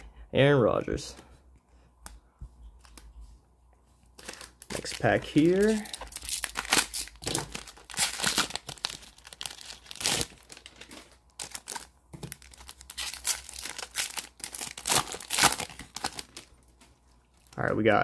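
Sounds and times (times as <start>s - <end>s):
plastic wrapper crinkling and tearing: 4.2s - 16.7s.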